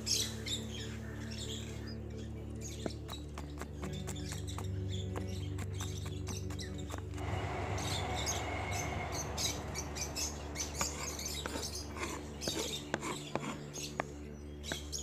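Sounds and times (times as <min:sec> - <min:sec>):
knife scraping on cutting board: 0:10.8 - 0:14.0.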